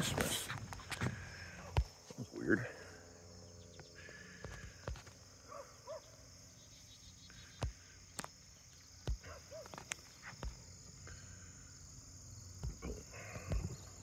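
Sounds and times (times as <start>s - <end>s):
insects chirping: 0.0s - 14.0s.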